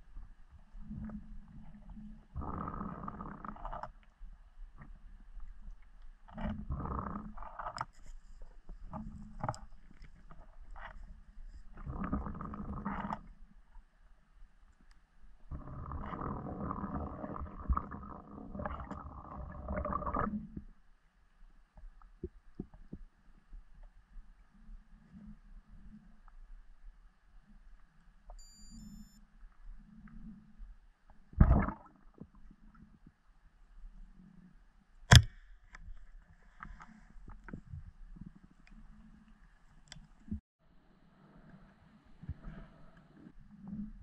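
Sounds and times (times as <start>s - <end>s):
muffled underwater thumps and rumble: 21.8s - 24.3s, 30.0s - 33.2s.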